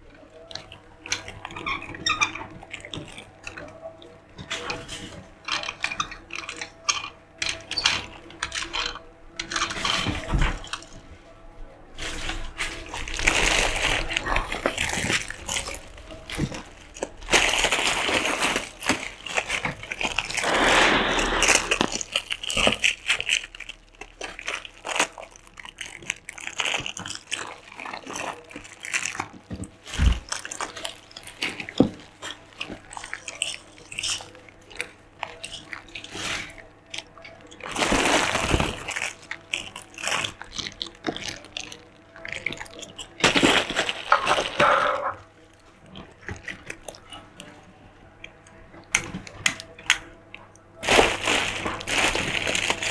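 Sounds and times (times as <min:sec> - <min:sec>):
plastic bags crinkling: 0:00.0 - 0:11.1, 0:12.0 - 0:47.6, 0:50.7 - 0:52.9.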